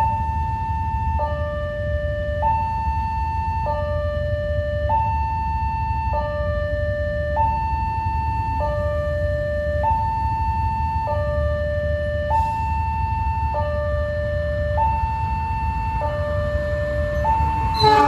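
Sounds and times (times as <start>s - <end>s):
two-tone level-crossing alarm: 0.0s - 18.0s.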